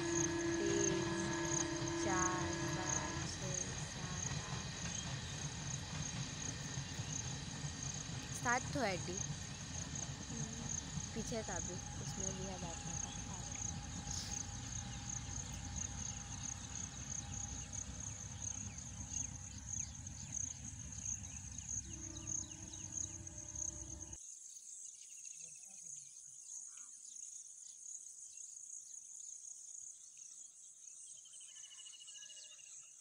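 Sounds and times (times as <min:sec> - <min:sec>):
crickets trilling: 0:00.0 - 0:24.2
distant passing train rumble: 0:00.0 - 0:24.2.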